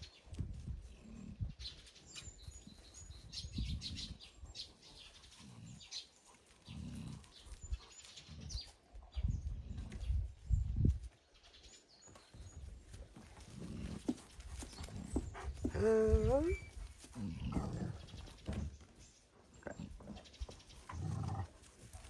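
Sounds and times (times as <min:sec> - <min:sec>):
dogs growling: 0:04.1 - 0:08.8, 0:13.4 - 0:18.7, 0:19.5 - 0:22.0.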